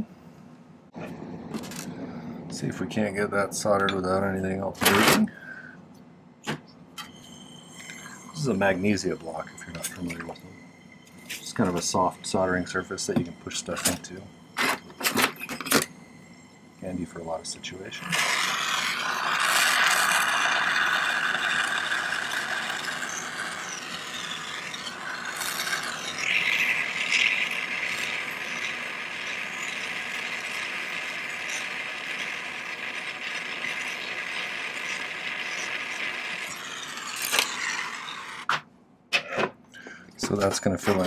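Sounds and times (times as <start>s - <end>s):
gas torch hissing: 17.2s - 38.5s.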